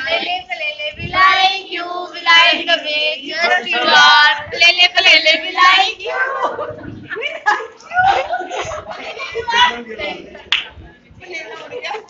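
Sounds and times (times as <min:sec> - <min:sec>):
women singing together: 0:00.0 - 0:09.4.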